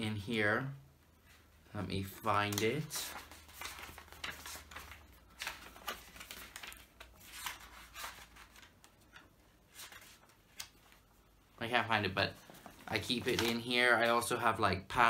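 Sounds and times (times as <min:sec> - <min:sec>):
paper pages flicking and rustling: 0:02.1 - 0:11.1, 0:12.4 - 0:14.0.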